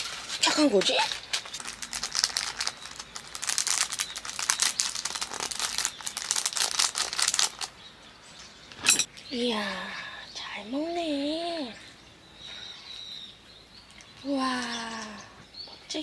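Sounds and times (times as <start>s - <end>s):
paper packet crinkling: 0.0s - 7.7s.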